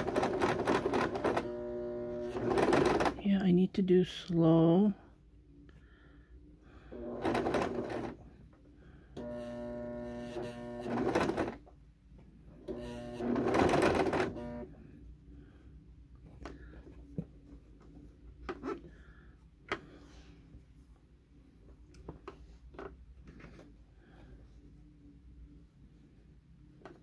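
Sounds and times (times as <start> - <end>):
sewing machine motor hum: 0.0 - 3.2, 6.9 - 8.2, 9.2 - 11.6, 12.6 - 14.8
sewing machine stitching: 0.0 - 3.2, 7.0 - 8.2, 9.2 - 11.6, 12.6 - 14.7.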